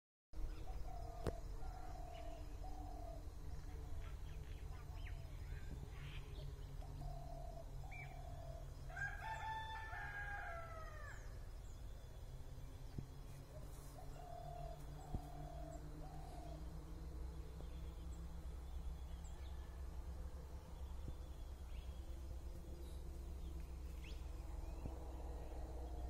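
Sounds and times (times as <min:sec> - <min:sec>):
rooster crowing: 0:08.9 - 0:11.3
steady low rumble: 0:11.3 - 0:26.0.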